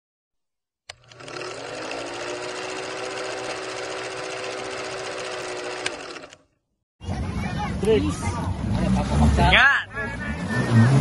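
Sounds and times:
film projector clatter and hum: 0.9s - 6.4s.

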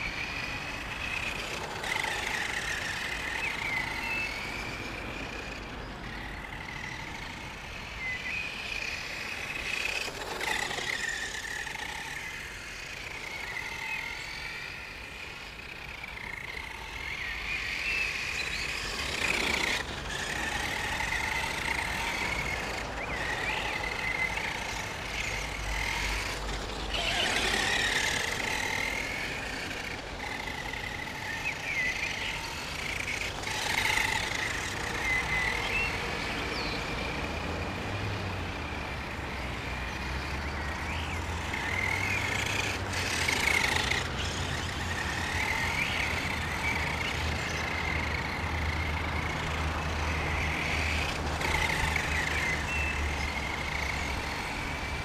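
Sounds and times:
rc truck motor whining: 0.0s - 55.0s.

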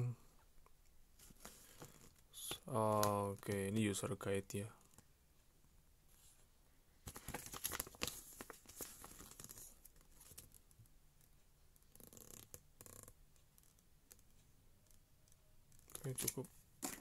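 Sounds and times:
paper rustling and crinkling: 7.0s - 10.6s.

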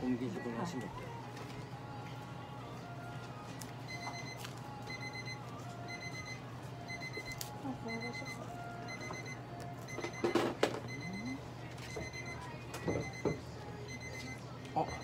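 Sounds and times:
medical alarm beeping: 3.9s - 15.0s.

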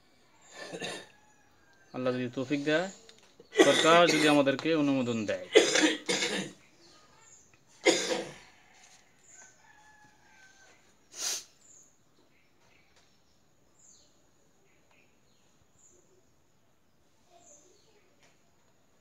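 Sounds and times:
small birds chirping: 0.0s - 19.0s
rooster crowing: 8.3s - 11.0s
brief hissing burst: 11.1s - 11.6s.

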